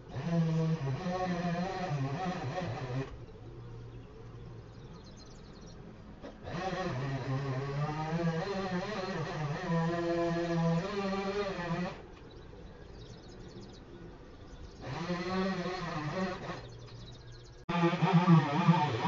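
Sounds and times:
motorised garden tool buzzing: 6.2s - 12.0s, 14.8s - 17.1s, 17.7s - 19.0s.

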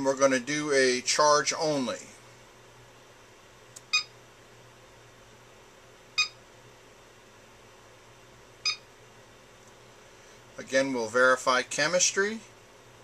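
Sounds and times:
battery charger beeping: 3.8s - 4.1s, 6.2s - 6.4s, 8.6s - 8.9s.

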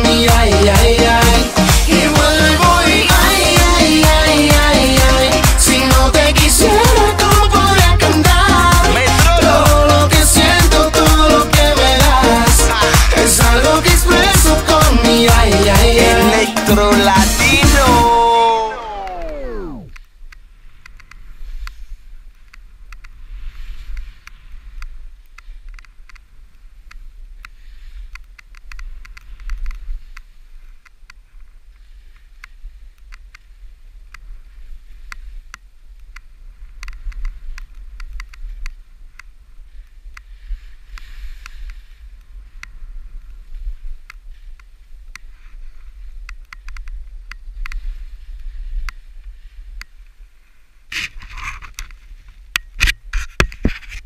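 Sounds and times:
skis scraping over snow: 20.6s - 28.1s, 38.4s - 42.5s, 47.5s - 52.5s
wind rumble on microphone: 31.5s - 54.0s.

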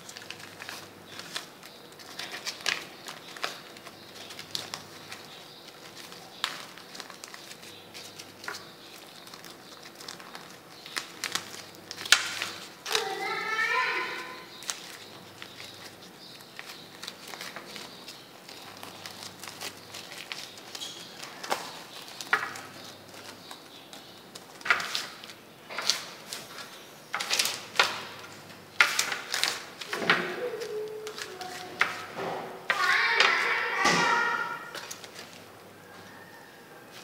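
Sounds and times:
plastic sheet rustling and crinkling: 0.0s - 36.2s, 36.8s - 37.0s
plastic crackling: 0.0s - 37.0s
person talking: 12.9s - 14.5s, 29.9s - 32.0s, 32.7s - 34.8s.

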